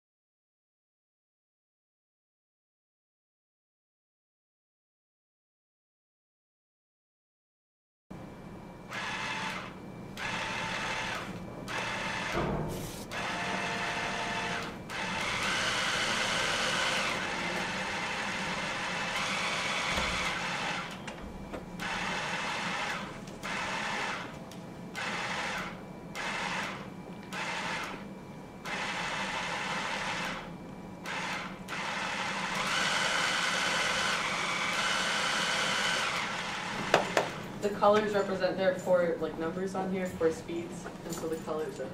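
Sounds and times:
hand mixer motor whirring: 8.9s - 12.4s, 13.1s - 21.0s, 21.8s - 28.0s, 28.6s - 37.5s.

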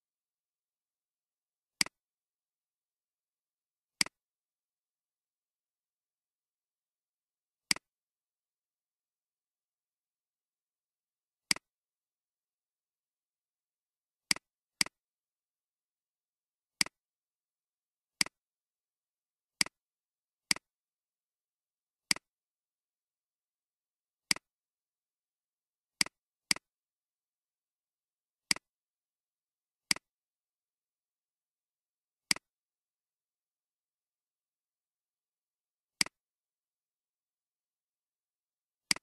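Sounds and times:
computer mouse clicks: 7.7s - 7.9s, 20.5s - 20.7s, 22.1s - 22.3s, 28.5s - 28.7s, 29.9s - 30.1s, 32.3s - 32.5s.

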